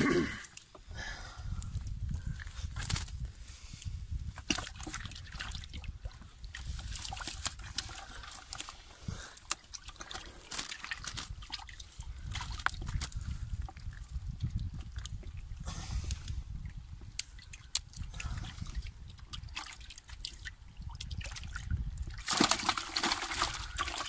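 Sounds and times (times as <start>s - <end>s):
wet net rustling: 6.7s - 13.1s, 22.2s - 24.0s.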